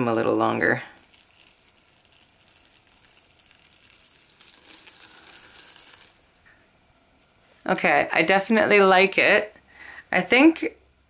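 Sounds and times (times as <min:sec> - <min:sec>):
plastic wrap crinkling: 0:00.0 - 0:06.5.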